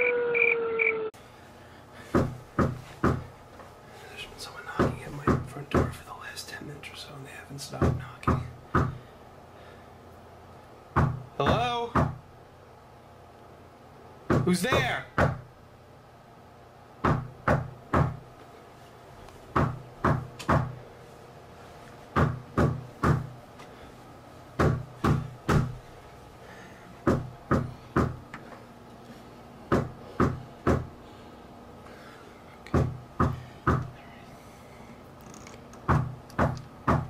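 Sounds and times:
knocking on a door: 2.1s - 3.3s, 4.8s - 6.0s, 7.8s - 9.0s, 11.0s - 12.2s, 14.3s - 15.5s, 17.0s - 18.2s, 19.5s - 20.8s, 22.2s - 23.3s, 24.6s - 25.8s, 27.0s - 28.2s, 29.7s - 30.9s, 32.7s - 33.9s, 35.9s - 37.0s.

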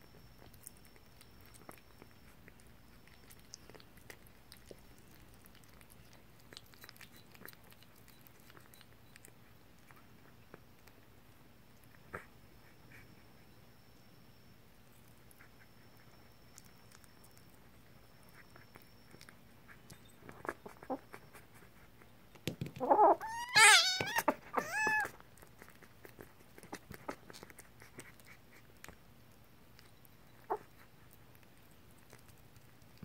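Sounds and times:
kittens eating from ceramic bowls: 0.0s - 33.0s
kitten meowing: 22.8s - 25.2s.

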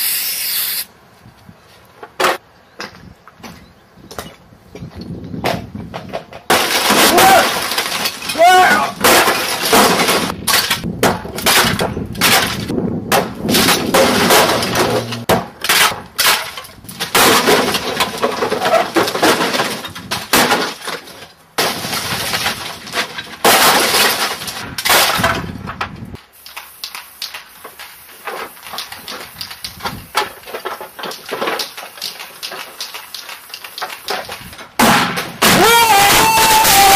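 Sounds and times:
pieces clattering down: 6.3s - 12.7s, 13.5s - 25.6s
corrugated sheeting smashing: 6.4s - 25.8s, 27.7s - 36.9s
scattered knocks and clicks: 26.4s - 35.3s.

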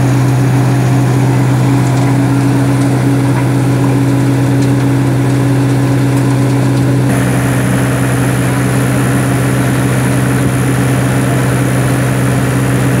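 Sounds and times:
high machine whine: 0.0s - 13.0s
machine drone with low hum: 0.0s - 13.0s.

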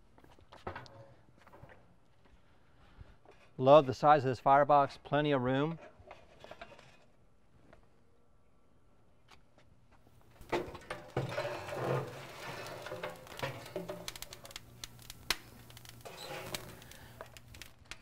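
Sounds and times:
metal clicks and clatter: 10.4s - 18.0s.

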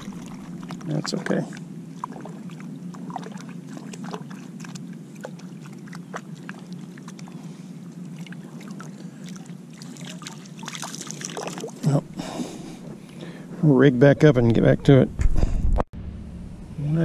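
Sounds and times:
water rushing: 0.0s - 12.0s
wind: 0.0s - 17.0s.

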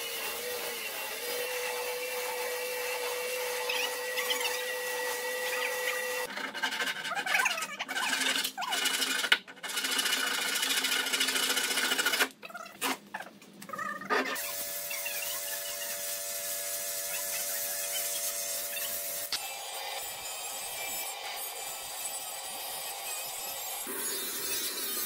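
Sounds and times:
power tool cutting wood: 0.0s - 6.3s, 14.3s - 25.0s.

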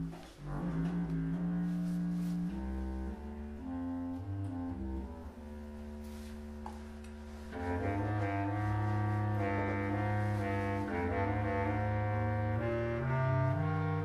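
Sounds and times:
clarinet ensemble playing: 0.0s - 14.0s.

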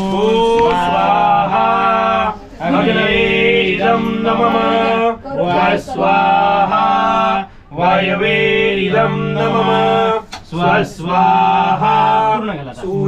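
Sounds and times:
man chanting: 0.0s - 5.0s.

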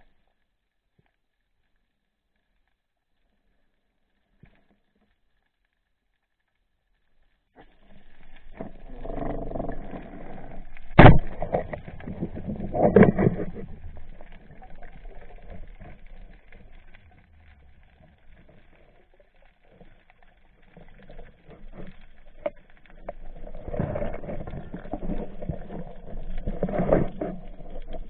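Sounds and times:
scattered knocks underwater: 7.6s - 20.0s, 20.6s - 28.0s
muffled underwater water rushing: 7.6s - 28.0s.

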